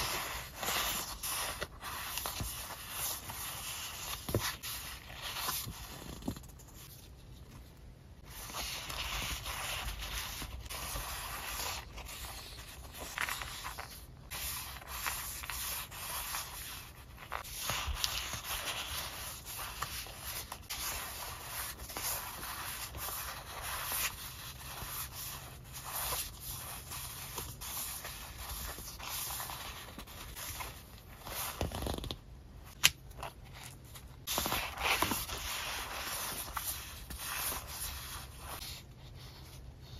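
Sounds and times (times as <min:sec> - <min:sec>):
paper sheets rustling: 0:32.8 - 0:39.6.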